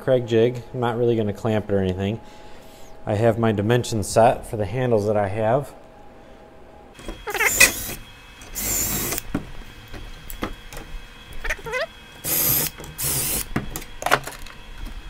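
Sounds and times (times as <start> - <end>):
cordless drill boring into wood: 7.3 - 9.2, 12.2 - 13.5.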